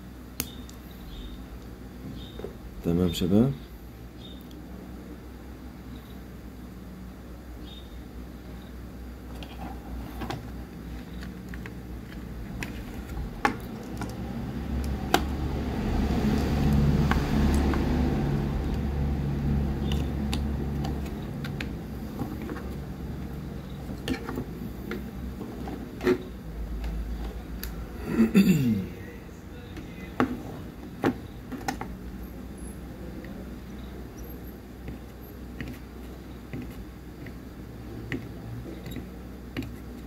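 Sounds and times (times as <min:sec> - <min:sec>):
low engine rumble: 0:10.6 - 0:38.9.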